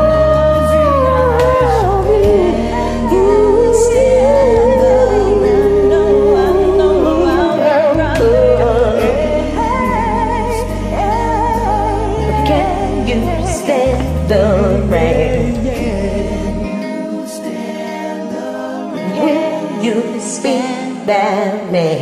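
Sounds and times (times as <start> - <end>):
karaoke backing track: 0.0 - 22.0.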